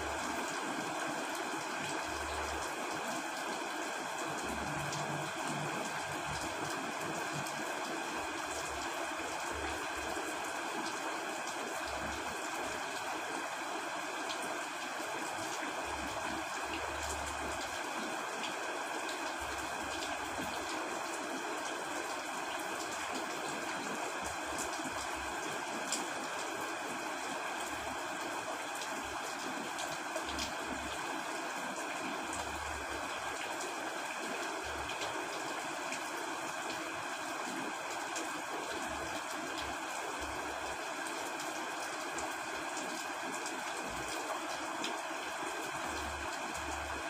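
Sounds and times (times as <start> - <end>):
heavy rain: 0.0 - 47.0.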